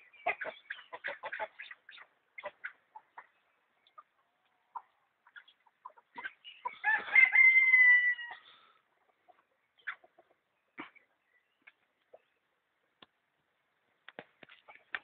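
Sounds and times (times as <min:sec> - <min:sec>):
chickens clucking: 0:00.0 - 0:13.2, 0:13.8 - 0:15.0
chicken long loud call: 0:06.8 - 0:08.5.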